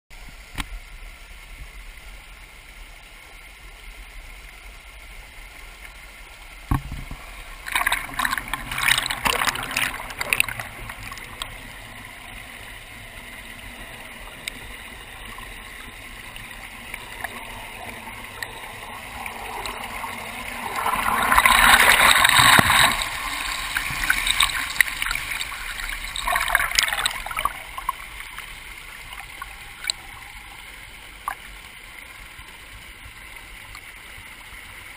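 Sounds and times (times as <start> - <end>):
stream rushing over rocks: 0.2 - 34.9
water splashing: 6.6 - 32.3
single knock: 6.7 - 7.2.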